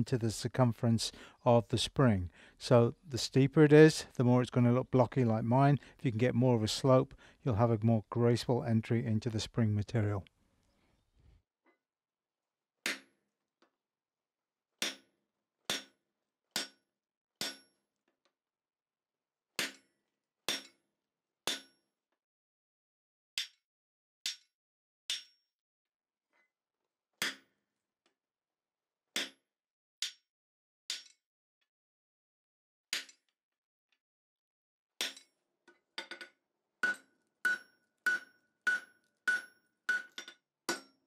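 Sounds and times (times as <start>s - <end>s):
hammer striking hot steel on anvil: 16.6s - 16.8s, 17.4s - 17.7s, 36.8s - 41.0s.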